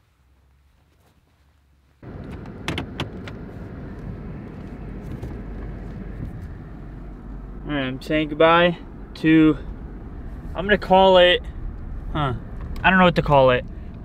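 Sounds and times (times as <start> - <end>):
engine and road noise in cabin: 0.0 - 14.0.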